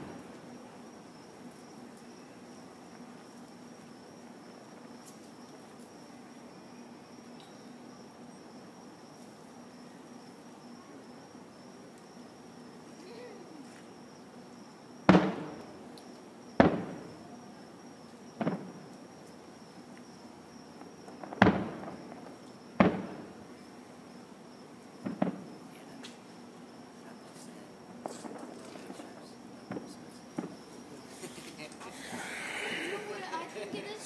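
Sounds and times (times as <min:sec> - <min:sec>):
firework shells booming: 0:00.0 - 0:00.6, 0:15.0 - 0:16.0, 0:16.6 - 0:17.4, 0:18.3 - 0:19.0, 0:20.8 - 0:23.6, 0:25.0 - 0:25.6, 0:29.6 - 0:30.7.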